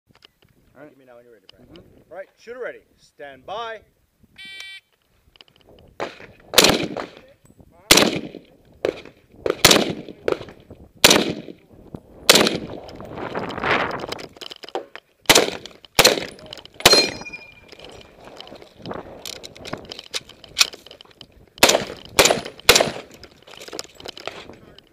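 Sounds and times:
rifle shots: 6.0 - 7.2, 7.9 - 11.6, 12.3 - 12.8, 15.3 - 17.4, 21.6 - 23.2.

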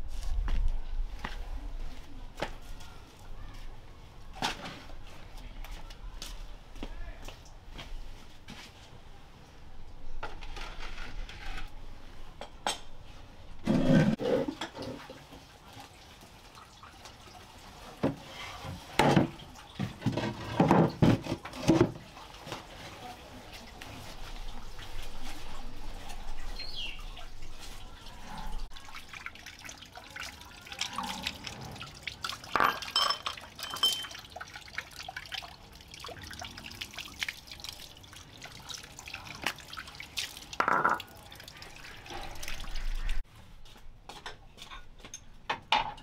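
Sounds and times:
water splashing on concrete: 28.8 - 43.2.

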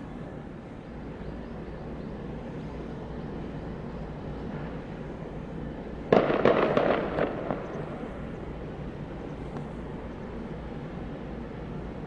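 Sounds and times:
steady low hum: 0.0 - 12.0
sharp cracks and pops: 6.1 - 7.9.

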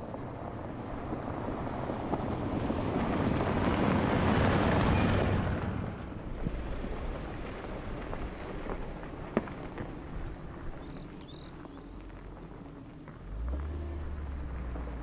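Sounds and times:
tyres on gravel: 0.0 - 15.0
vehicle engine driving past: 13.1 - 15.0.

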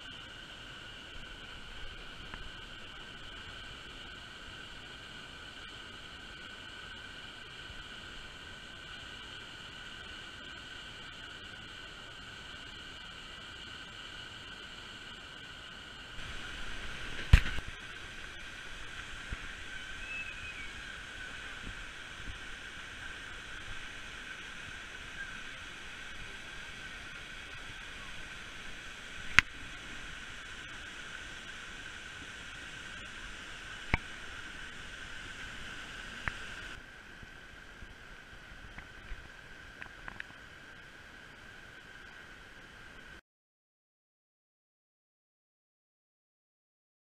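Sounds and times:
waterfall rushing: 16.2 - 39.7.

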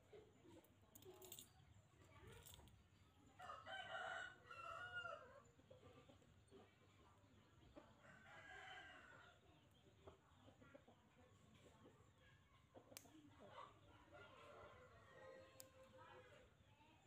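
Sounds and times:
rooster crowing: 3.4 - 5.3.

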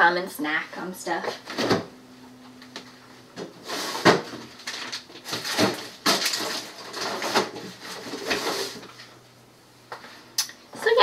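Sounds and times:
packages knocking and clattering: 3.4 - 8.9
packages rustling: 3.5 - 9.1.

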